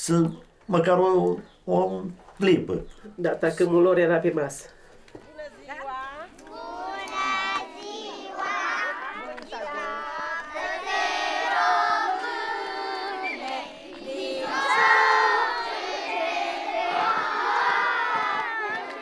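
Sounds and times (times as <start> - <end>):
children singing and calling out: 6.3 - 19.0.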